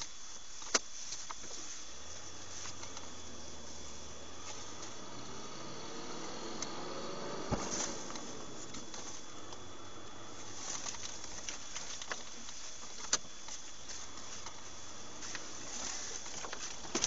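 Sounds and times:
small ticks and rattles: 0.0s - 5.4s
vehicle cabin hiss: 0.0s - 17.0s.

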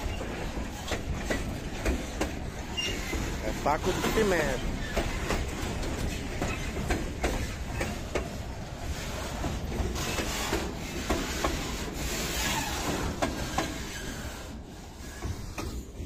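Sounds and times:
freight train rumbling past: 0.0s - 16.0s
hissing rail noise: 0.0s - 16.0s
wheels clacking on rails: 0.0s - 16.0s.

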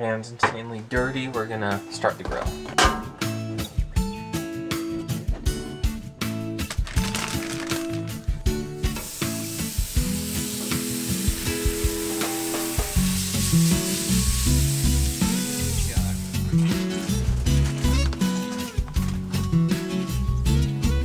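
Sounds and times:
guitar music: 1.0s - 21.0s
bacon sizzling: 6.6s - 18.6s.

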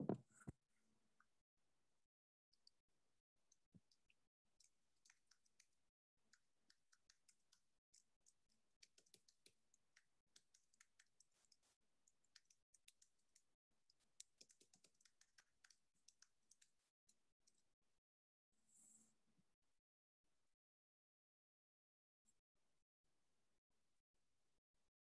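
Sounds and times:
computer keyboard typing: 8.2s - 11.3s, 12.1s - 13.4s, 14.1s - 16.8s.

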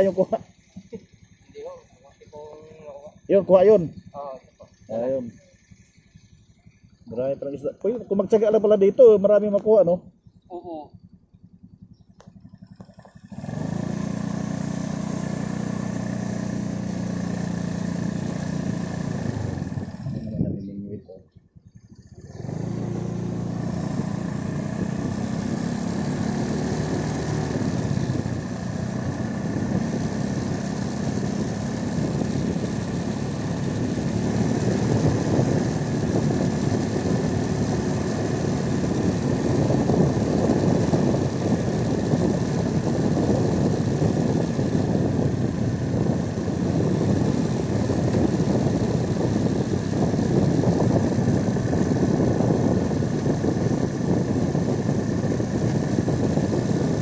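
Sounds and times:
motorcycle engine running: 0.0s - 57.0s
rushing wind noise: 13.3s - 20.8s, 22.2s - 57.0s.

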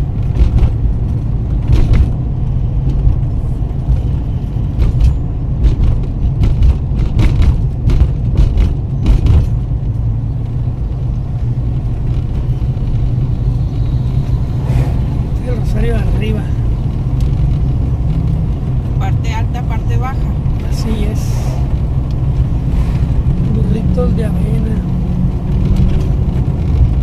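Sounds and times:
knocks and rattles: 0.0s - 10.1s
road and engine rumble: 0.0s - 27.0s.

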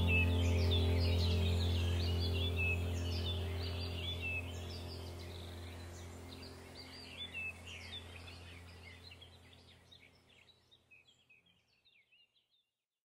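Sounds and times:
steady low hum: 0.0s - 10.4s
birds chirping and whistling: 0.0s - 12.2s.

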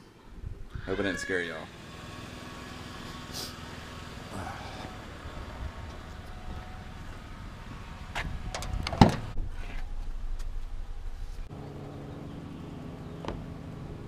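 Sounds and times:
steady low hum: 3.0s - 14.0s
car door clicks and thump: 8.2s - 9.3s.

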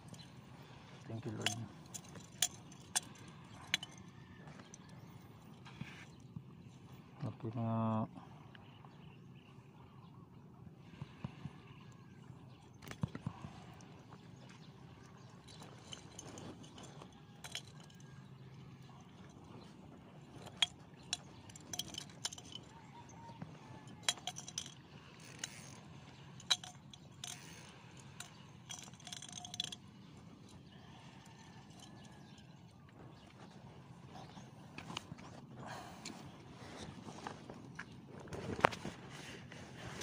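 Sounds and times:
fishing tackle clicking: 1.4s - 4.0s, 17.4s - 18.0s, 20.5s - 22.7s, 24.0s - 25.8s, 26.4s - 29.8s.

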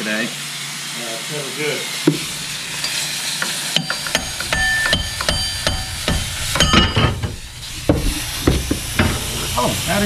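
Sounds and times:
steady hiss: 0.0s - 10.0s
metal tools clinking: 3.8s - 7.5s.

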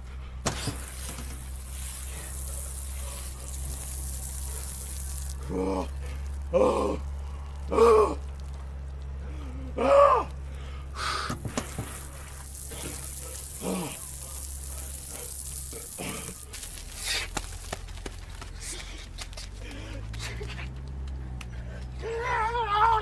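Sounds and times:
shower water splashing: 0.5s - 8.6s, 11.4s - 17.8s
man exclaiming: 22.0s - 23.0s.

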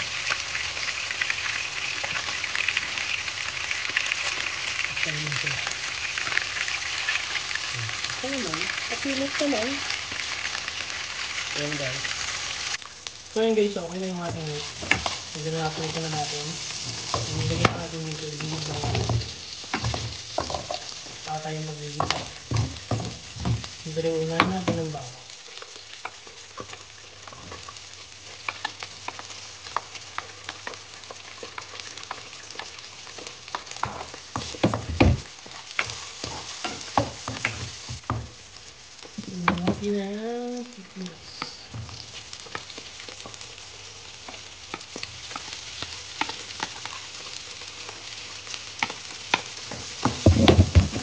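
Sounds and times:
meat sizzling in oil: 0.0s - 51.0s
spatula scraping pan: 14.2s - 21.2s, 28.4s - 38.1s.

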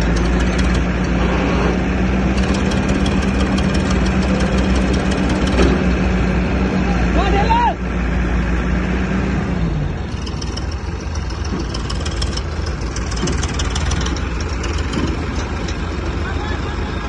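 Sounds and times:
fast high ticking: 0.0s - 1.0s, 2.3s - 5.9s, 10.1s - 16.2s
diesel engines idling: 0.0s - 17.0s.

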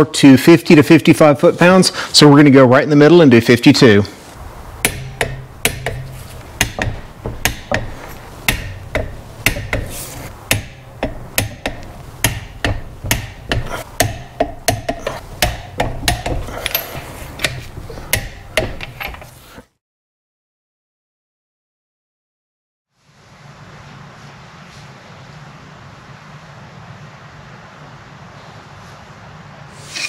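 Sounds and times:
low steady hum: 3.8s - 19.5s
ratchet wrench clicking: 4.8s - 19.4s.

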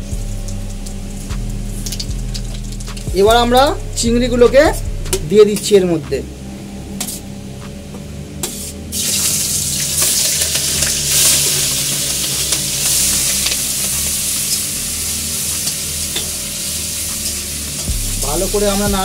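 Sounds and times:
prawns sizzling in hot oil: 0.0s - 3.1s, 8.4s - 18.8s.

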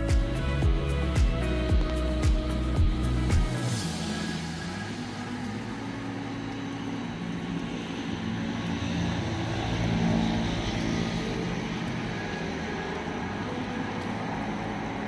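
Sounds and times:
vehicle engine humming: 0.0s - 15.0s.

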